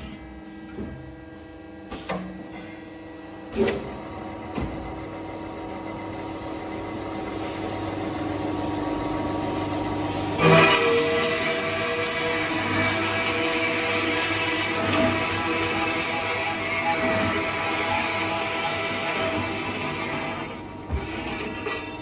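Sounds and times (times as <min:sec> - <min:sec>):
saw blade cutting metal tubes: 0:10.3 - 0:22.0.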